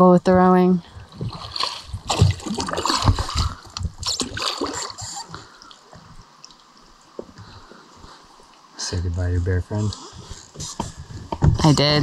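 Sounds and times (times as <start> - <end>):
oars splashing in water: 0.9 - 8.2
water dripping and gurgling: 0.9 - 8.7.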